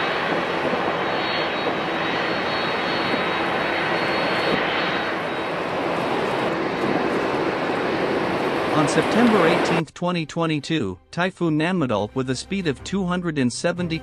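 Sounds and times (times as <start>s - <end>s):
high turbine whine: 0.0s - 9.8s
jet turbine roaring: 0.0s - 9.9s.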